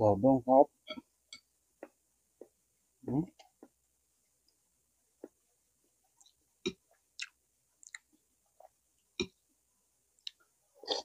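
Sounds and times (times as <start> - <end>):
wet chewing mouth clicks: 7.2 - 8.1.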